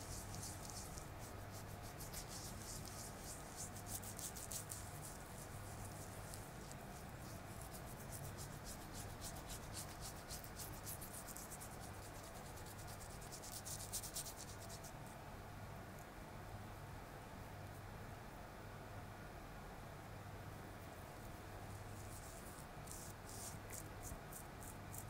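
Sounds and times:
rubbing strokes on skin: 0:00.0 - 0:15.1, 0:21.7 - 0:25.0
low steady hum: 0:00.0 - 0:25.0.

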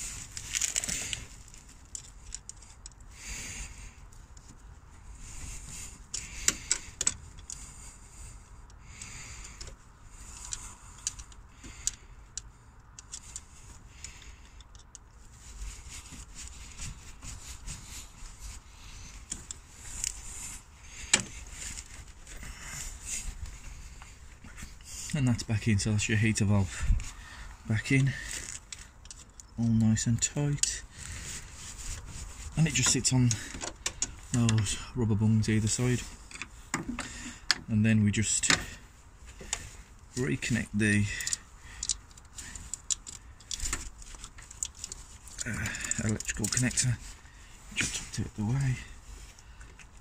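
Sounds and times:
soft rustling and scraping: 0:00.0 - 0:50.0
sharp metal clicks: 0:06.0 - 0:07.7, 0:08.7 - 0:15.2, 0:40.5 - 0:46.9.

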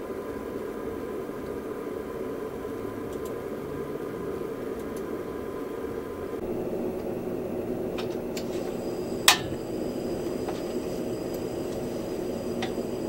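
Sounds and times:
steady low hum: 0:00.0 - 0:13.0
stove igniter click: 0:07.8 - 0:13.0
stove knob clicks: 0:07.9 - 0:08.6, 0:09.2 - 0:13.0.

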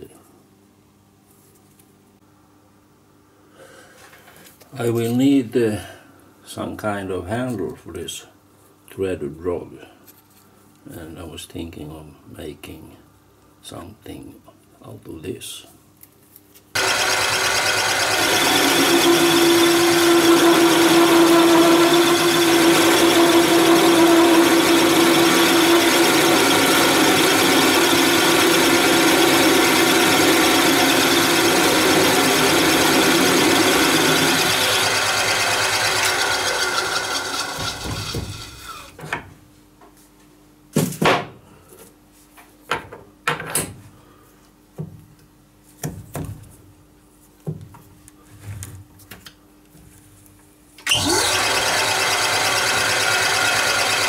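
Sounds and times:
metal lathe cutting: 0:16.8 - 0:38.8, 0:50.9 - 0:54.0
lathe winding down: 0:16.8 - 0:38.9, 0:50.8 - 0:54.0.

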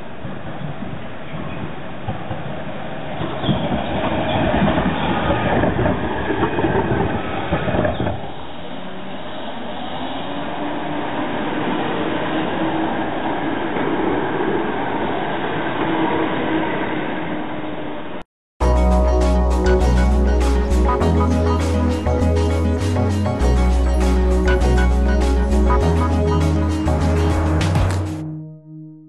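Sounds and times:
tram wheels rumbling on rails: 0:00.0 - 0:17.9.

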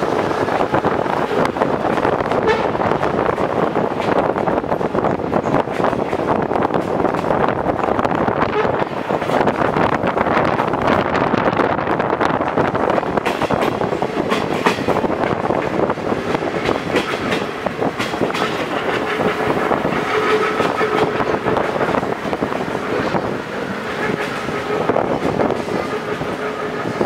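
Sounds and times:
steady rushing noise: 0:00.0 - 0:27.0
train wheels clattering over rails: 0:00.0 - 0:27.0.

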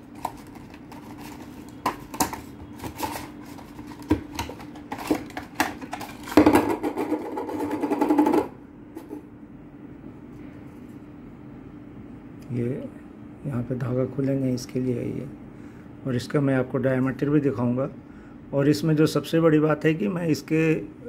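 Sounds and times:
plastic packaging crackling: 0:00.0 - 0:06.4.

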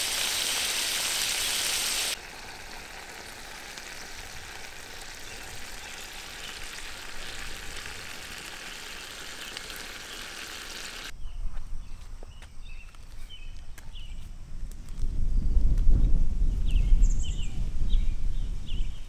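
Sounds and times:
sauce sizzling in a pan: 0:00.0 - 0:11.1
birds chirping: 0:03.9 - 0:14.3.

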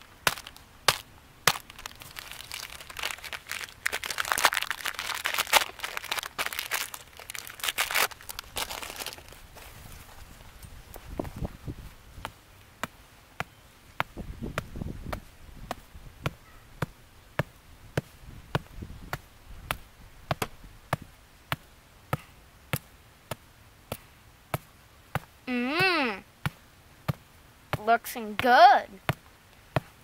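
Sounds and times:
dull low thumps: 0:08.3 - 0:12.3, 0:14.0 - 0:21.6.

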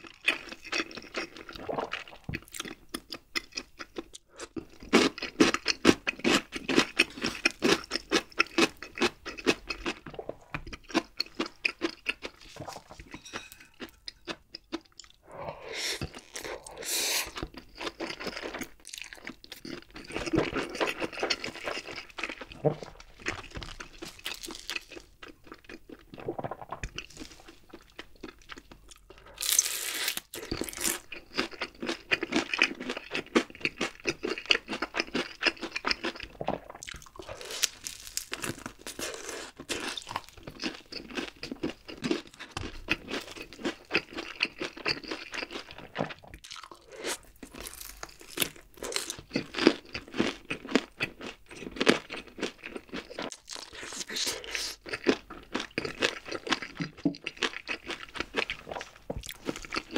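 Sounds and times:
crunching fried chicken: 0:16.1 - 0:59.9.

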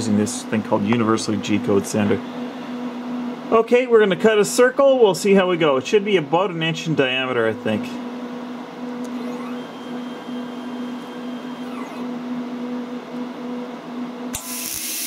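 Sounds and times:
stepper motors whining: 0:08.9 - 0:12.9.

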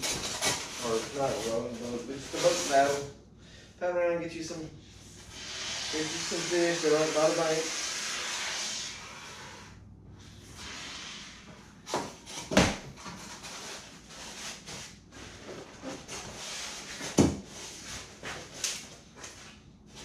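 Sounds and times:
spray hiss: 0:05.3 - 0:09.7.

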